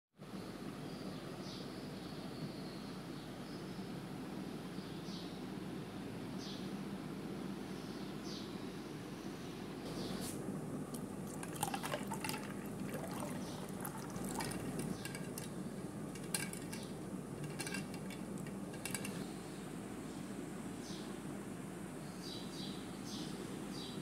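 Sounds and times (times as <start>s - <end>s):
steady low hum: 0.2s - 24.0s
liquid swishing: 11.0s - 15.5s
ice and spoon clinking: 11.3s - 15.5s, 16.2s - 16.8s, 17.4s - 18.2s.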